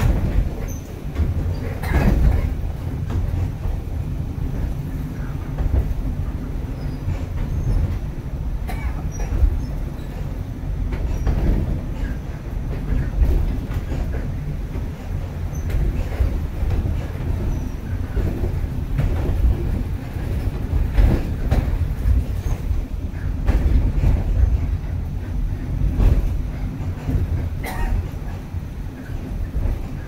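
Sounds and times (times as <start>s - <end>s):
funicular car rumbling: 0.0s - 30.0s
wheel clacks on track: 8.7s - 30.0s.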